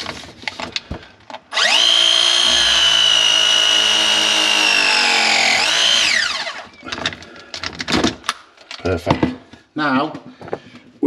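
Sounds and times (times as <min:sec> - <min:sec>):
electric pipe press motor whining: 0:01.5 - 0:07.0.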